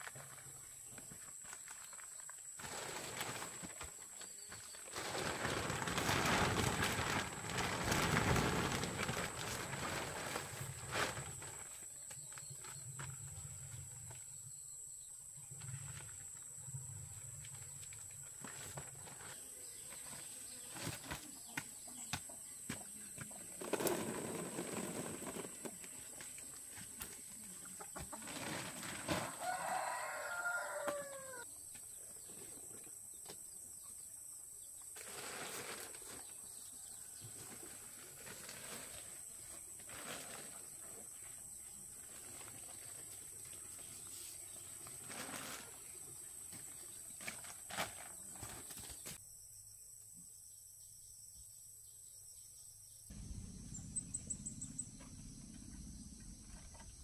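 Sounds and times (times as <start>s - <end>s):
rustling: 1.3s - 13.2s, 35.0s - 49.2s.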